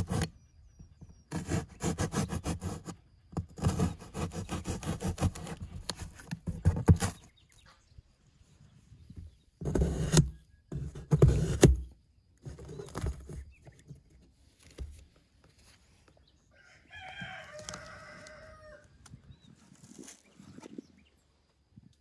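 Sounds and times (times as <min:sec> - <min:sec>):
knife cutting cardboard: 0:00.0 - 0:00.4, 0:01.2 - 0:07.3, 0:09.6 - 0:13.8
rooster crowing: 0:16.5 - 0:19.0.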